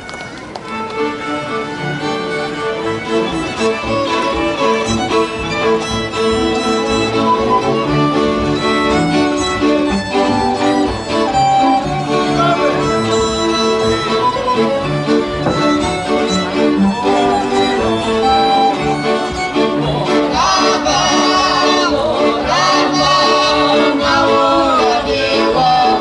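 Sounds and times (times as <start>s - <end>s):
folk string band playing: 0.0s - 26.0s.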